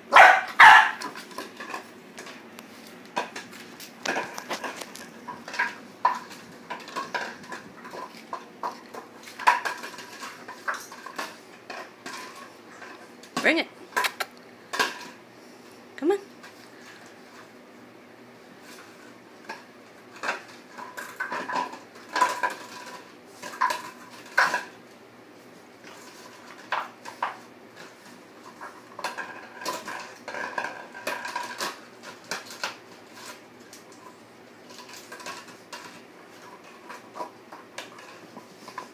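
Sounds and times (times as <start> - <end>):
plastic bottle clattering on tile floor: 3.1 - 12.5, 19.5 - 24.8, 25.8 - 33.4.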